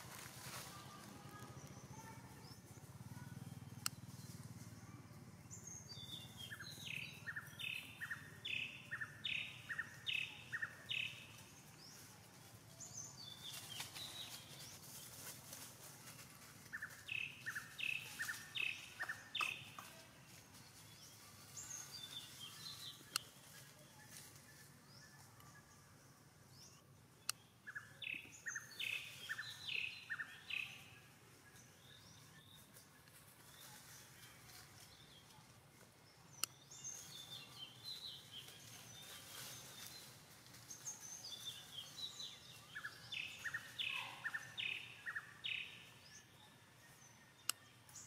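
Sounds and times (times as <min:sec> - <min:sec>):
faint forest background: 0:00.0 - 0:48.0.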